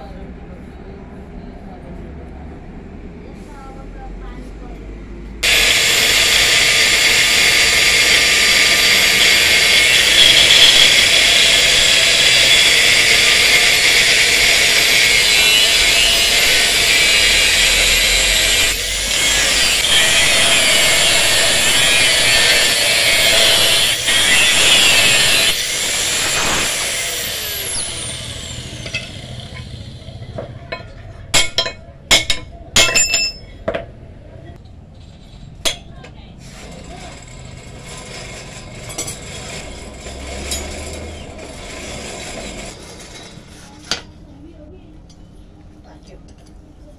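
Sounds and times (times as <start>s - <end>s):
grinder spinning down whine: 5.4s - 30.4s
angle grinder cutting steel: 5.4s - 31.6s, 36.5s - 43.4s
sharp metal knocks: 30.8s - 33.4s.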